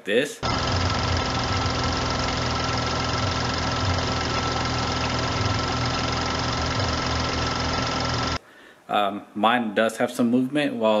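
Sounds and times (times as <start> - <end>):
car engine idling: 0.4 - 8.4
thin steady whine: 0.4 - 8.4.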